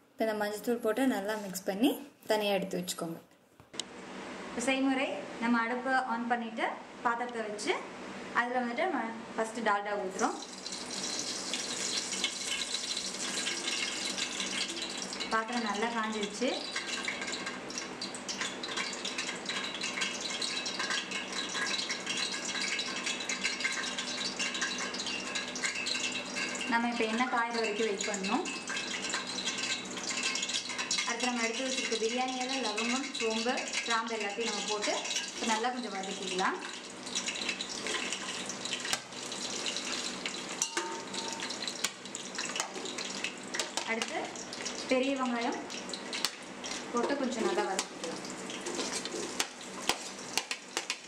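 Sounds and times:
fat sizzling and crackling: 10.1s - 51.0s
spoon stirring in pot: 16.6s - 26.7s, 27.5s - 44.8s, 45.7s - 51.0s.

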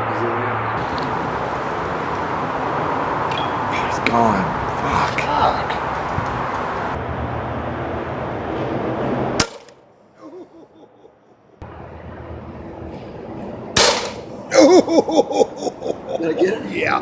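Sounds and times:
air rifle shot: 9.4s - 9.7s, 13.8s - 14.3s.

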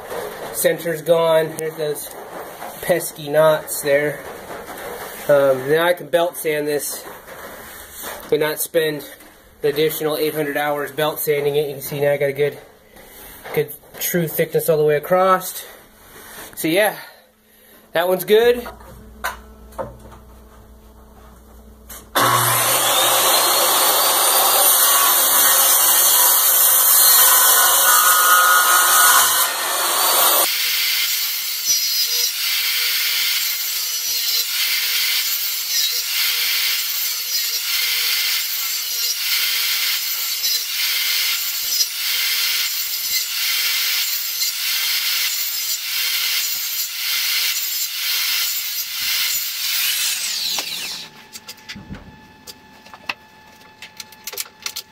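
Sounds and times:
circular saw cutting wood: 22.1s - 51.1s
saw rasping back and forth: 22.2s - 51.1s.

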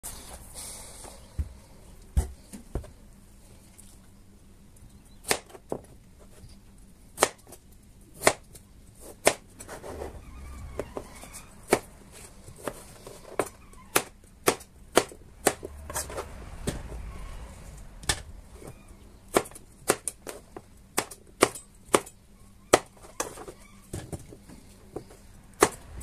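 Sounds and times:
knife chopping on plastic board: 8.2s - 8.5s, 9.2s - 9.4s, 13.4s - 16.1s, 21.0s - 22.1s.

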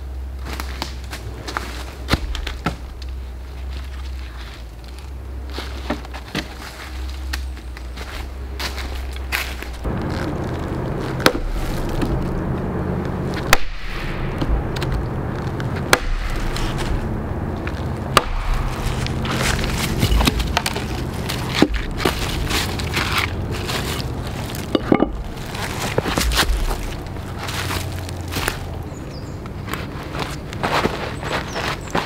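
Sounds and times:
hatchet chopping wood: 11.2s - 12.1s, 13.4s - 15.0s, 15.9s - 17.0s, 18.1s - 22.3s.

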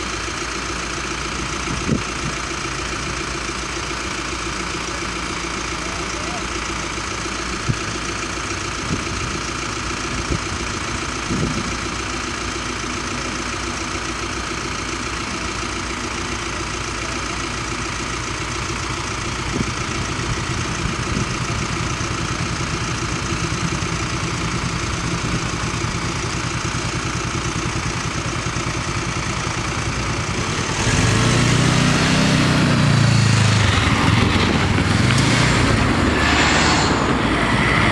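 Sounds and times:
vehicles idling: 0.0s - 37.9s
engines revving: 27.4s - 37.9s.

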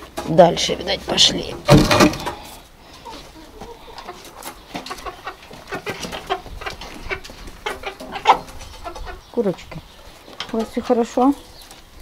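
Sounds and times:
chickens clucking: 0.0s - 12.0s.

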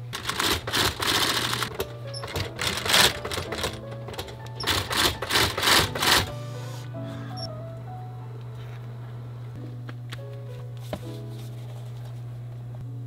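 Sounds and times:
industrial sewing machine stitching: 0.0s - 6.3s
background music: 0.7s - 12.0s.

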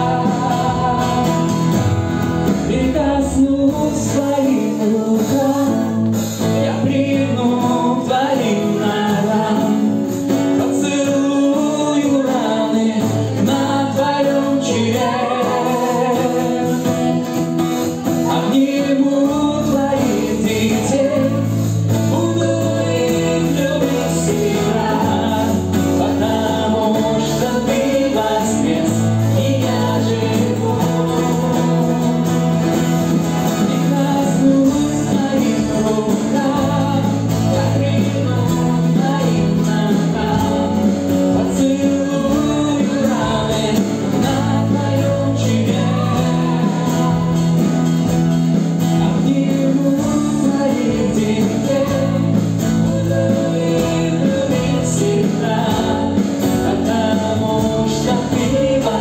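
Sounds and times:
acoustic guitar: 0.0s - 59.0s
electric guitar: 0.0s - 59.0s
man and woman singing: 0.0s - 59.0s.

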